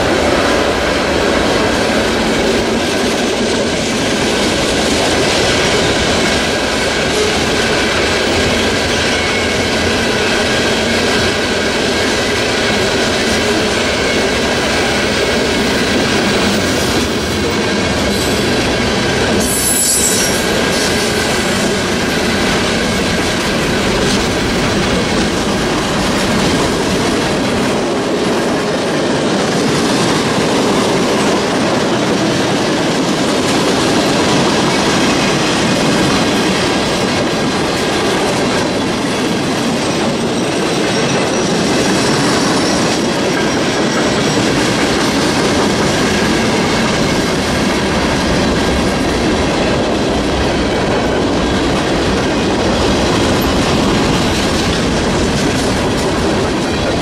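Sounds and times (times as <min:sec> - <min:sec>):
train wheels rolling on rails: 0:00.0 - 0:57.0
high-pitched wheel screech: 0:19.4 - 0:20.6.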